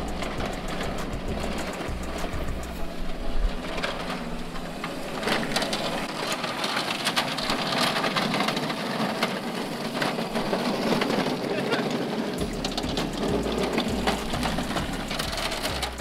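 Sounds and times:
wheels crunching over leaves: 0.0s - 16.0s
electric motor whirring: 12.2s - 16.0s.

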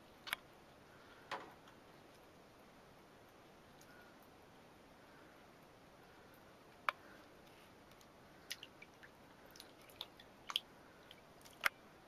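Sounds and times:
cat splashing shallow water: 8.4s - 11.8s.

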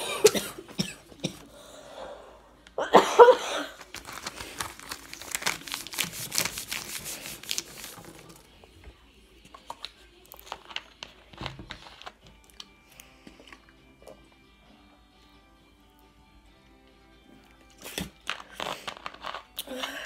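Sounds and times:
person coughing: 0.0s - 1.5s, 2.8s - 3.8s
paper crinkling and rustling: 3.7s - 8.6s, 18.0s - 19.6s.

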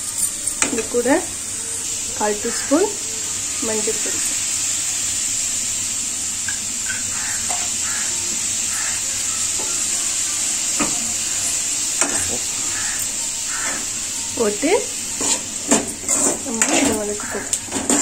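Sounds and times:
onions frying in oil: 0.0s - 18.0s
metal spoon knocking on pan: 6.5s - 7.8s.

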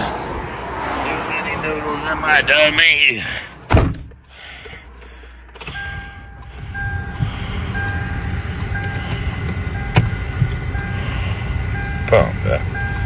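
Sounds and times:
car engine running: 0.0s - 13.0s
two-pitch warning chime: 5.7s - 9.1s.

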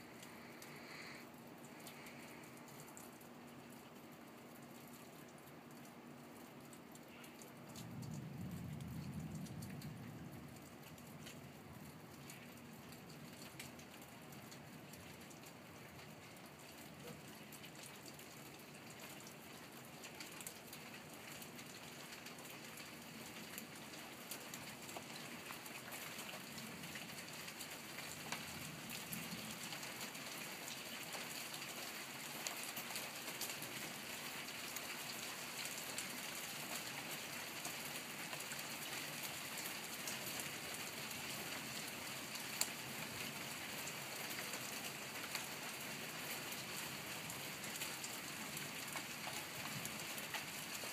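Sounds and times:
rain falling: 0.0s - 50.9s.

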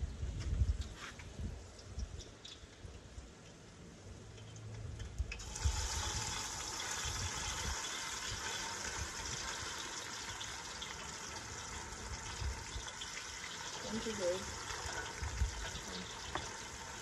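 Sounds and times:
fish sizzling in hot oil: 4.3s - 17.0s.

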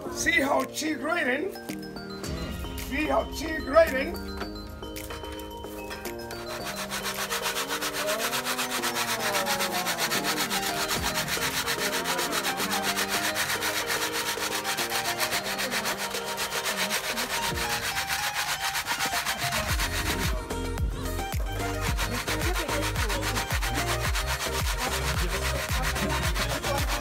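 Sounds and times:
grating on metal grater: 6.3s - 27.0s.

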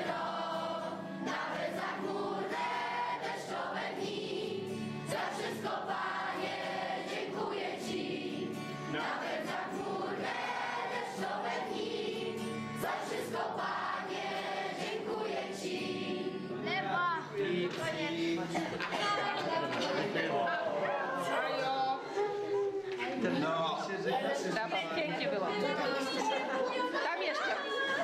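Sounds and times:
children singing in unison: 0.0s - 16.6s
strummed acoustic guitar: 0.0s - 18.9s.

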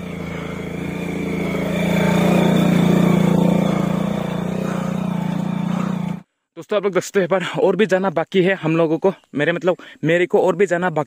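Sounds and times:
small motorcycle engine running: 0.0s - 6.2s.

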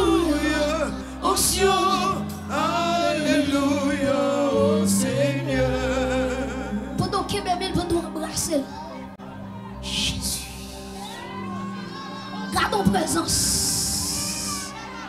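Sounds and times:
choir singing: 0.0s - 7.3s
young lead voice singing: 0.0s - 8.1s
held accompaniment chords: 0.0s - 15.0s.

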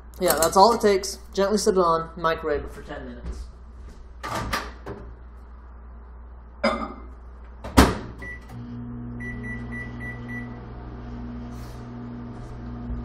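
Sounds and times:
microwave oven humming: 7.8s - 13.0s
keypad beeps: 9.2s - 10.5s.

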